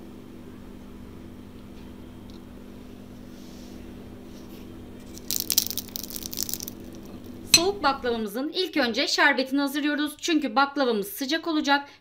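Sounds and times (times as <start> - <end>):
fork clinking on ceramic plate: 7.1 - 8.0.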